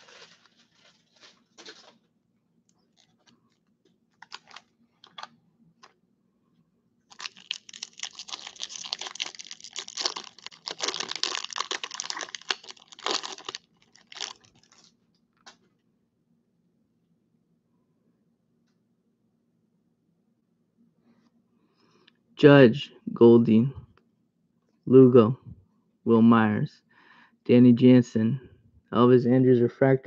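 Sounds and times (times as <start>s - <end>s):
foil wrapper crinkling and tearing: 0.0s - 2.0s, 4.2s - 5.3s, 7.1s - 15.0s.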